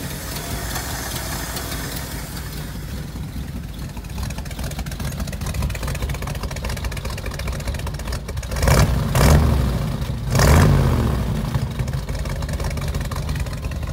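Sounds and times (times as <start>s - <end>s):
pickup engine idling and revving: 0.0s - 13.9s.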